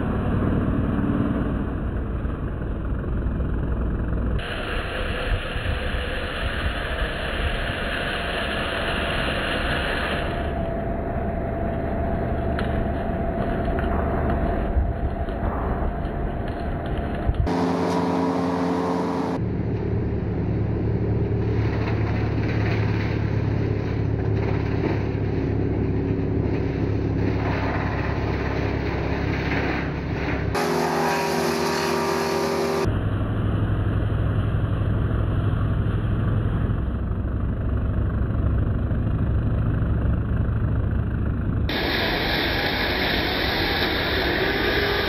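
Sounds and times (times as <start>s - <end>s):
brush chipper chewing branches: 12.1s - 32.9s, 41.7s - 45.0s.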